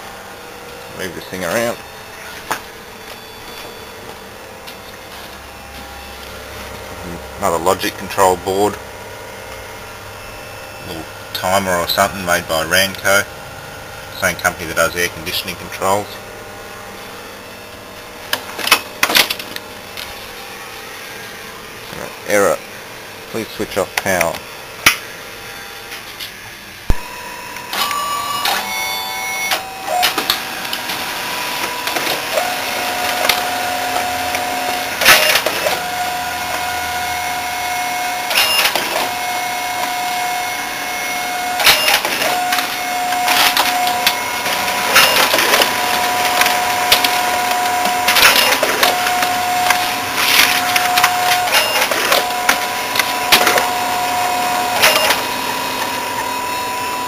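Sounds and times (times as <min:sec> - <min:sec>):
copier high whine: 0:00.0 - 0:57.0
motor tone starting and stopping: 0:24.1 - 0:57.0
mechanical clacks: 0:41.6 - 0:53.6.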